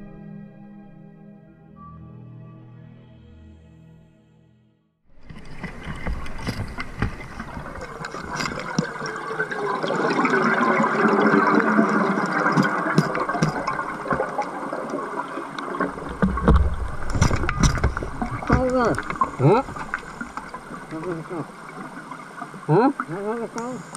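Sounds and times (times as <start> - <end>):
diving gear clicks and knocks: 5.2 - 9.5, 12.0 - 15.0, 15.6 - 22.6
diver's bubbles gurgling underwater: 5.2 - 23.8.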